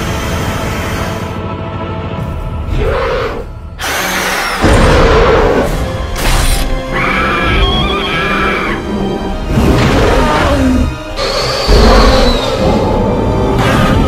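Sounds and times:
dramatic soundtrack music: 0.0 - 14.0
monster screeching roar: 6.9 - 8.9.

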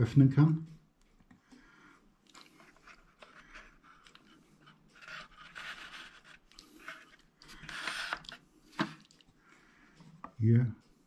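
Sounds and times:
scraping and rustling of handling: 2.2 - 10.5.

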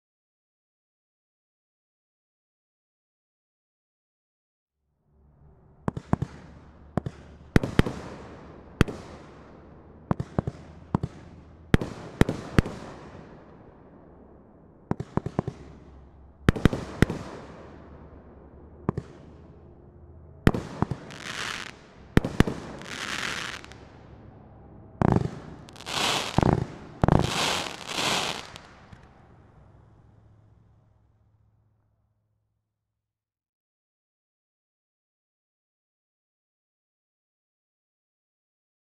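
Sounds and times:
firework shots: 5.9 - 13.6, 14.9 - 18.1, 18.8 - 19.6, 20.5 - 24.1, 25.0 - 29.8
heavy firework booms: 20.5 - 23.9, 25.0 - 29.0
firework crackle: 20.6 - 23.9, 25.0 - 29.7
firework hissing: 21.0 - 21.8, 22.6 - 23.8, 25.4 - 29.0.

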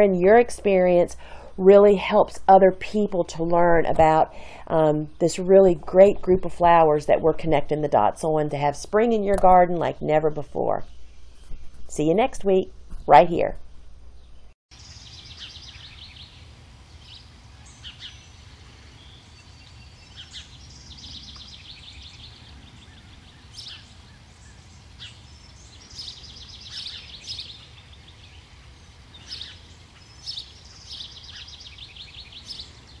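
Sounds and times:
birds singing: 14.1 - 33.0.

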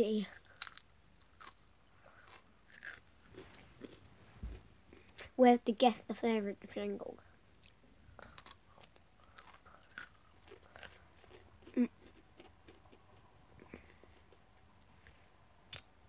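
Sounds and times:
crisp crunching and chewing: 0.4 - 4.0, 7.6 - 15.8.

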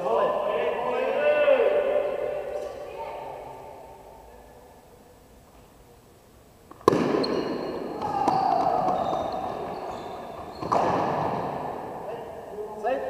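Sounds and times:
bat hitting ball: 6.7 - 9.0
crowd shouting and cheering: 7.8 - 9.7.

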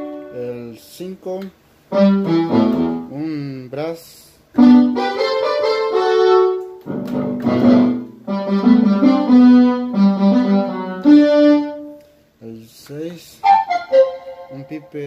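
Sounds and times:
synthesizer brass chords: 1.9 - 3.1, 4.6 - 12.0, 13.4 - 14.9.

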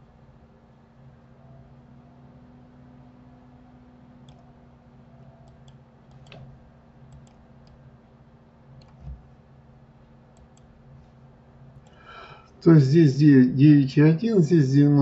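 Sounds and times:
faint steady hum: 0.0 - 15.0
computer mouse buttons clicking: 4.2 - 4.4, 5.3 - 6.5, 7.1 - 7.8, 10.4 - 10.7.

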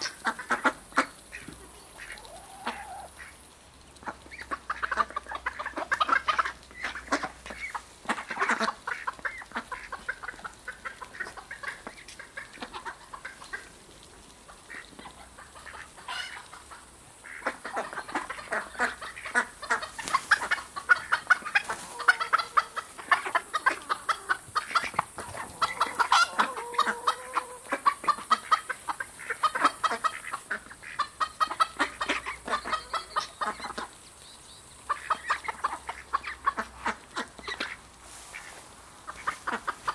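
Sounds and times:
ducks chattering: 0.0 - 13.8, 14.4 - 39.9
ducks pecking ticks: 0.0 - 39.9.

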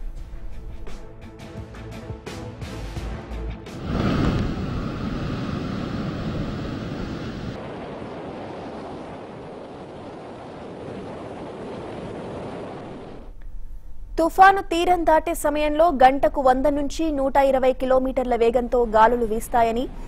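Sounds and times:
rough sea surf breaking: 3.7 - 13.3
wind noise: 3.7 - 13.3.

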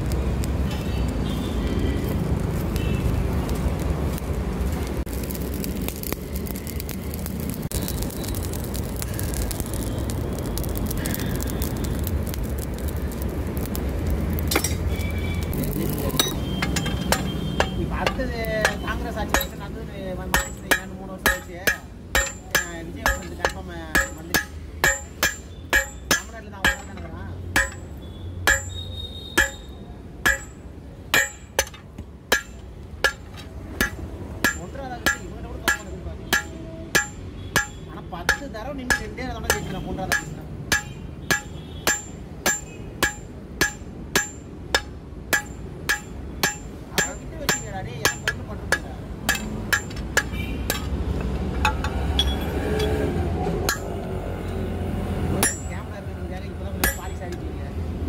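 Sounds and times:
hammer striking metal on anvil: 16.2 - 19.7, 20.3 - 53.0, 53.6 - 54.0, 55.4 - 55.9, 56.8 - 57.5.

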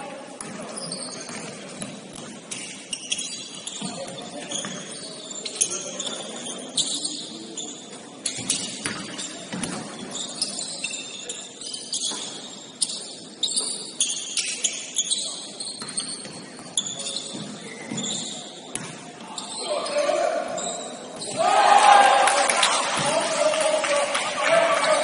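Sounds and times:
shoes squeaking on gym floor: 0.4 - 21.4.

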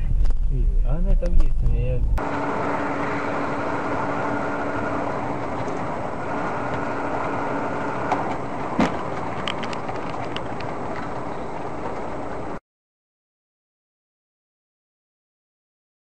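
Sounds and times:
car engine and tyre noise: 0.0 - 12.6.

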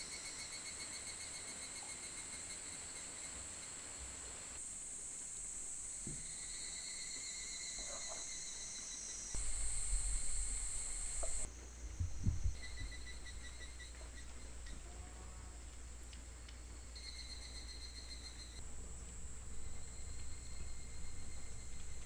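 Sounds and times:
insects chirping: 0.0 - 22.0
low rumble: 18.6 - 22.0.

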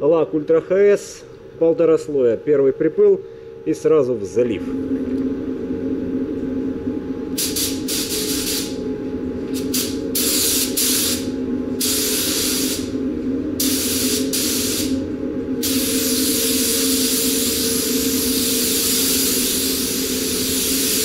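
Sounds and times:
steady low hum: 0.0 - 21.0
spray gun hissing: 7.4 - 8.8, 9.6 - 13.0, 13.6 - 15.0, 15.6 - 21.0.

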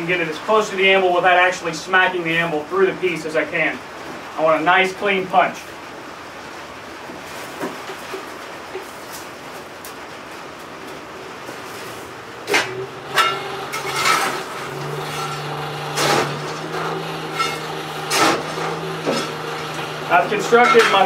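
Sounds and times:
steady low hum: 10.4 - 21.0.

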